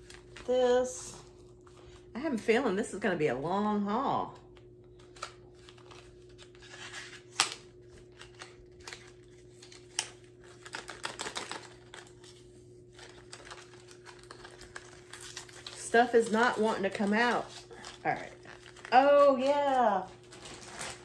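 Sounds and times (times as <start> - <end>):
faint steady hum: 0.0 - 21.0
plastic packaging crinkling: 5.0 - 21.0.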